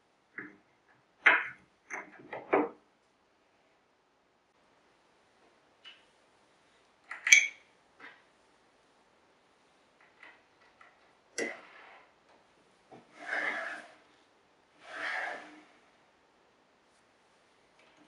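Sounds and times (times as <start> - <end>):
wood sliding on wood: 12.9 - 14.2, 14.8 - 15.8.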